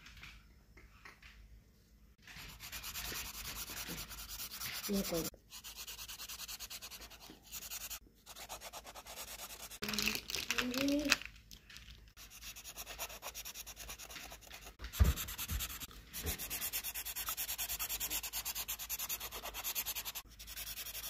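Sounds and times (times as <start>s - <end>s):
felt-tip marker scratching on paper: 2.3s - 9.8s, 12.2s - 21.0s
thump: 14.8s - 16.4s.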